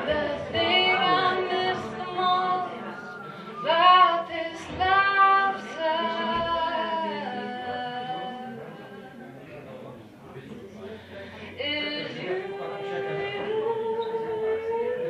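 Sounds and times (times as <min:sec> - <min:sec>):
woman singing: 0:00.0 - 0:09.0, 0:11.6 - 0:15.0
acoustic guitar: 0:00.0 - 0:09.2.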